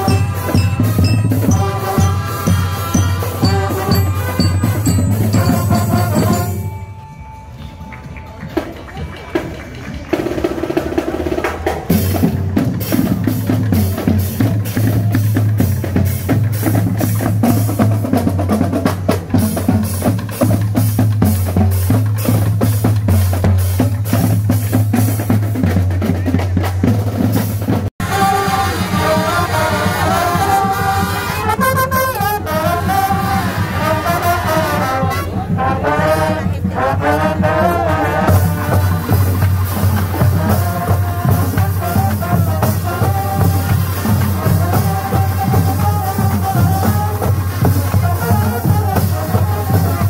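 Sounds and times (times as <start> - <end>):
heavy bass drum beats: 0.0 - 6.9, 10.7 - 50.0
brass playing melody: 0.0 - 7.5, 28.0 - 50.0
marching drum line cadence: 0.0 - 50.0.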